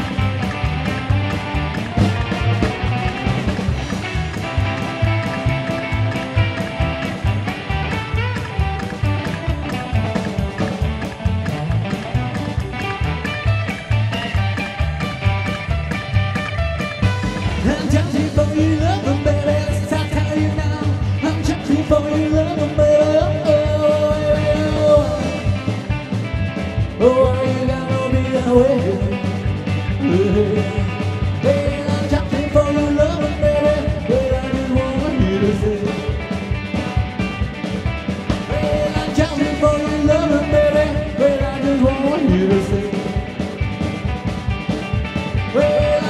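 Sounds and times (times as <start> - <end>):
rock and roll band playing: 0.0 - 46.0
man singing: 17.6 - 25.7, 26.9 - 36.3, 38.5 - 43.4, 45.4 - 46.0.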